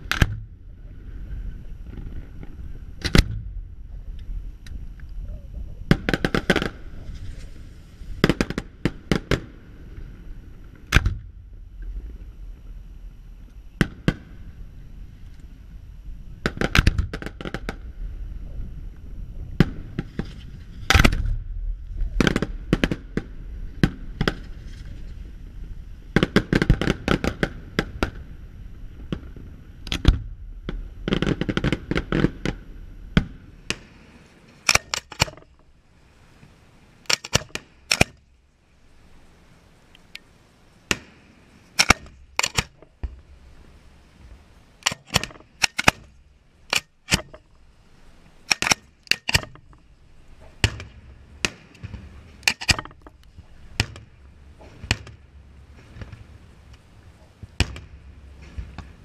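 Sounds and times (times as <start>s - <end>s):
low rumble: 0.0s - 26.2s, 27.5s - 36.8s
fireworks crackling: 5.8s - 11.1s, 18.8s - 40.2s
fireworks bursting with sharp bangs: 5.8s - 12.0s, 13.8s - 14.6s, 16.4s - 17.9s, 19.6s - 24.9s, 26.1s - 35.6s, 40.8s - 43.5s, 48.4s - 56.5s, 57.4s - 59.0s.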